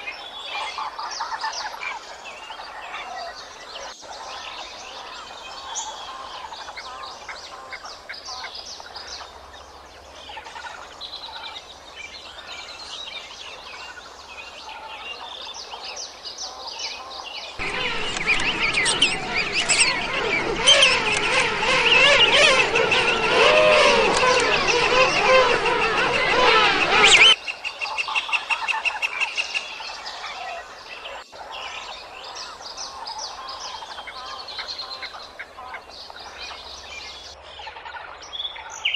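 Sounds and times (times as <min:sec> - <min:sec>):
bird chirps: 0:16.5 - 0:35.4
penguin colony calling: 0:17.6 - 0:27.4.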